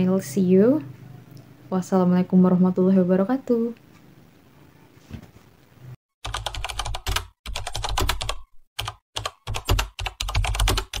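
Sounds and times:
keyboard typing: 0:06.2 - 0:11.0.

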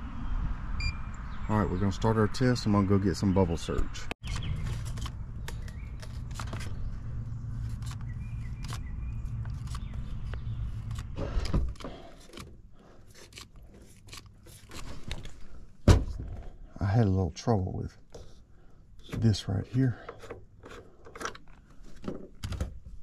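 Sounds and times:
thump: 0:15.8 - 0:16.4.

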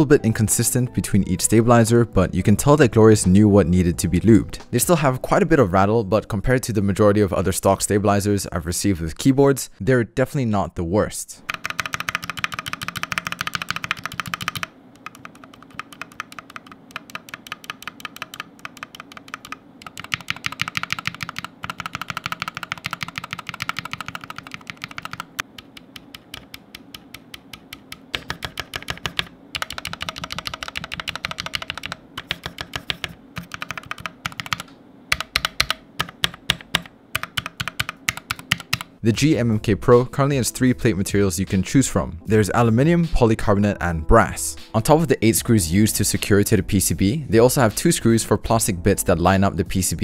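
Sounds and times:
keyboard keys clacking: 0:11.4 - 0:39.0.

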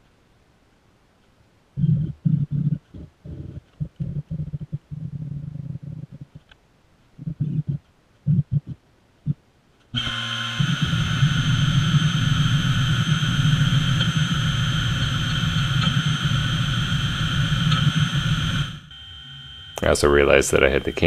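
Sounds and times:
mill spindle whining: 0:10.0 - 0:21.0.

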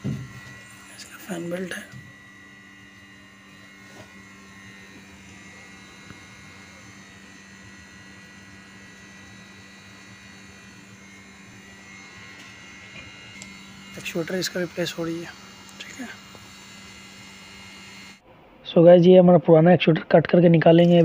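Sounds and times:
low machine hum: 0:00.0 - 0:18.7.

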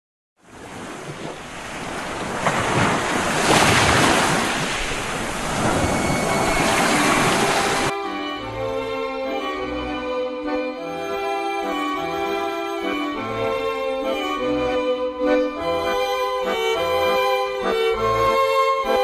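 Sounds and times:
rushing noise: 0:03.2 - 0:07.9
music: 0:07.9 - 0:19.0.

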